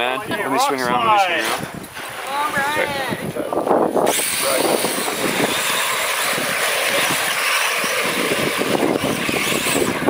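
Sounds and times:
toy truck motor running: 4.0s - 10.0s
tyres churning through mud: 4.0s - 10.0s.

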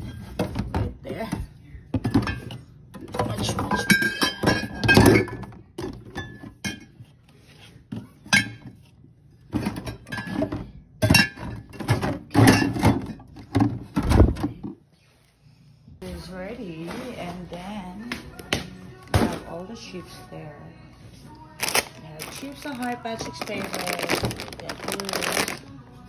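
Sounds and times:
glass bottles and cans clinking: 2.0s - 7.0s, 9.6s - 13.8s.

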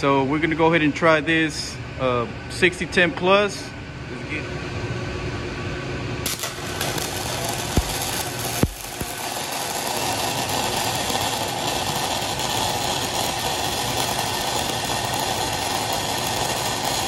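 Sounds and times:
welding arc hissing: 6.2s - 17.0s.

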